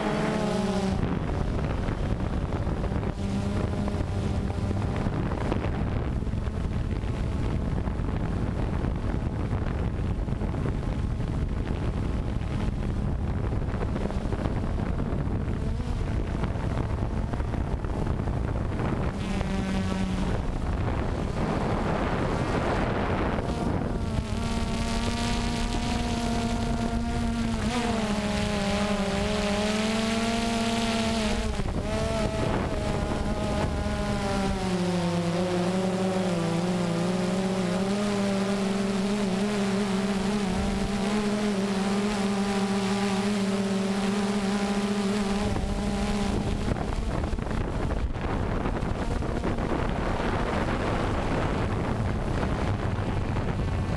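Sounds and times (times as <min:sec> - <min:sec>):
drone propellers humming: 0:00.0 - 0:53.9
wind on microphone: 0:00.0 - 0:53.9.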